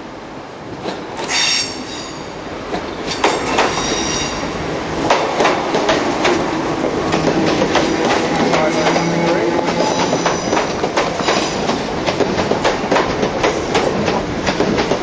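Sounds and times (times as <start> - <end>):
train wheels squealing: 1.3 - 2.3, 3.6 - 4.5, 8.6 - 11.6
wheels clicking on rails: 5.0 - 15.0.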